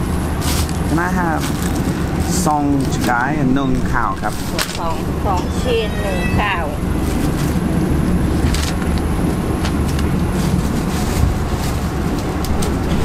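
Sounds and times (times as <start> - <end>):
diesel train engine rumbling: 0.0 - 13.0.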